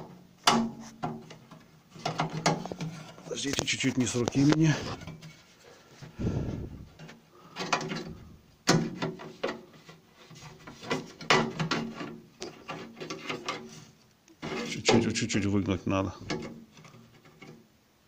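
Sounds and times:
sharp clicks and knocks: 0.0s - 5.2s
metal scraping and rubbing: 0.7s - 15.3s.

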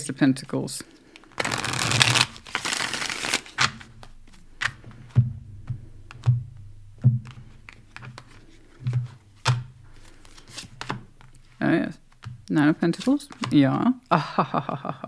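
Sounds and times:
cards being shuffled: 1.1s - 4.8s, 7.2s - 13.9s
cards laid on cloth table: 7.3s - 12.3s, 12.9s - 13.8s.

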